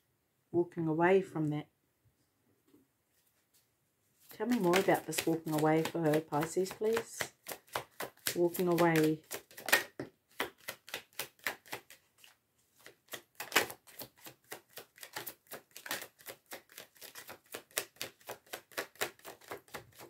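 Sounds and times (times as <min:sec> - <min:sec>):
cards being shuffled: 0:04.2 - 0:20.0.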